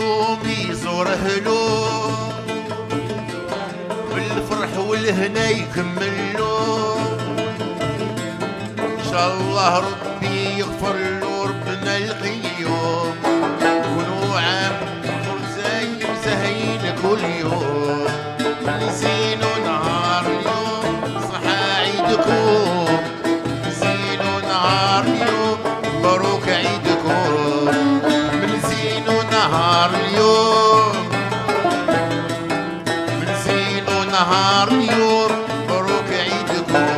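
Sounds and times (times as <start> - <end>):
plucked lute and banjos strumming: 0.0 - 36.9
violin and keyboard melody: 18.2 - 29.2, 31.3 - 33.8.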